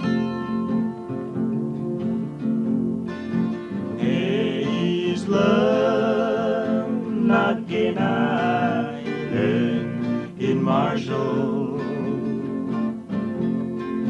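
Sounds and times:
acoustic guitar: 0:00.0 - 0:14.0
person singing: 0:04.0 - 0:12.9.

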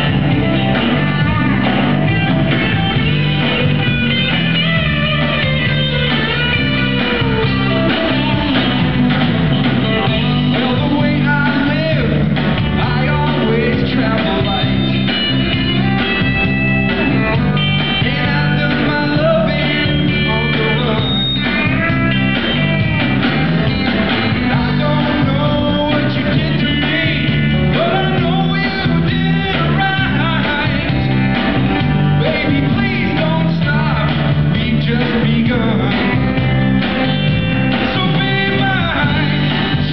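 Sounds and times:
guitars playing rock song: 0:00.0 - 0:39.9
man singing: 0:09.8 - 0:15.6, 0:17.1 - 0:22.0, 0:24.1 - 0:36.6, 0:37.6 - 0:39.9.

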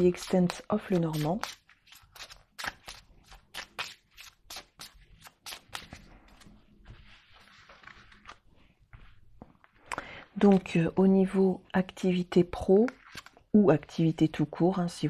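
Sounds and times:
cards sliding rustle: 0:00.0 - 0:10.7, 0:12.9 - 0:13.4.

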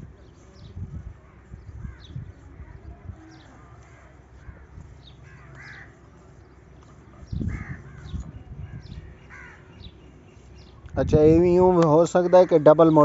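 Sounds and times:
crow cawing: 0:03.8 - 0:06.0, 0:07.5 - 0:08.1, 0:09.3 - 0:09.8, 0:12.2 - 0:12.9.

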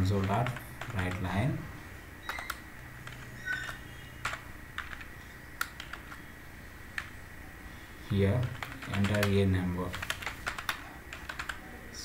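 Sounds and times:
faint steady hum: 0:00.0 - 0:12.0
keyboard keystrokes: 0:00.1 - 0:01.2, 0:02.3 - 0:06.2, 0:08.4 - 0:11.6.

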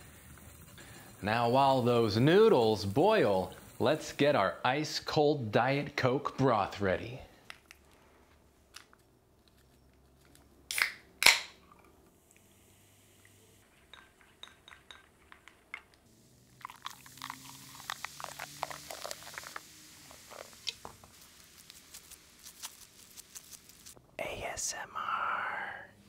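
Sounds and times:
soda fizzing in a bowl: 0:00.0 - 0:04.4, 0:16.0 - 0:24.0.

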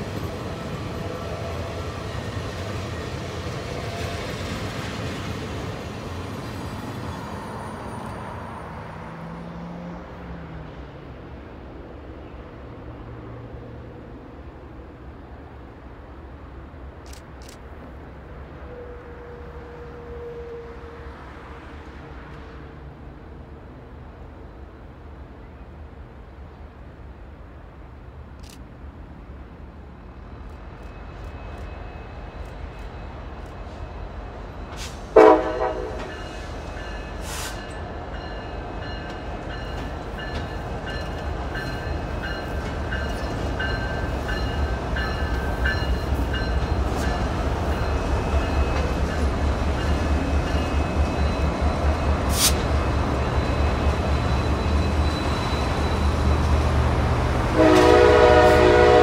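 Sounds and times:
diesel locomotive engine rumble: 0:00.0 - 0:59.0
train horn blast: 0:18.6 - 0:21.2, 0:34.8 - 0:36.5, 0:57.4 - 0:59.0.

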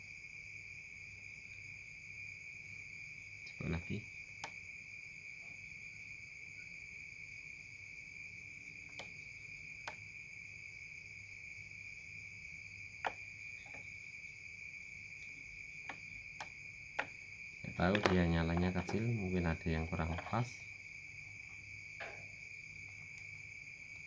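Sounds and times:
high-pitched insect trill: 0:00.0 - 0:24.0
clicks from wires and socket: 0:08.9 - 0:09.2, 0:09.8 - 0:10.0, 0:17.8 - 0:19.1.

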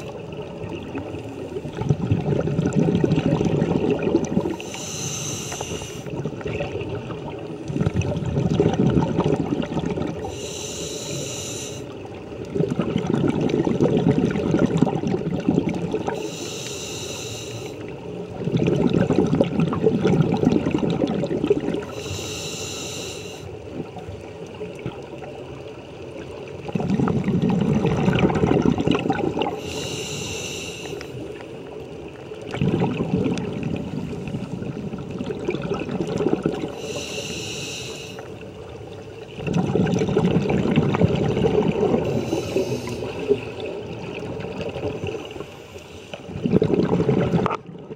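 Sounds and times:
exhaled air bubbling underwater: 0:00.0 - 0:47.9
hissing inhale through regulator: 0:04.4 - 0:06.2, 0:10.2 - 0:12.0, 0:16.0 - 0:18.0, 0:21.8 - 0:23.7, 0:29.4 - 0:31.5, 0:36.6 - 0:38.5, 0:42.0 - 0:43.6, 0:44.8 - 0:46.4.

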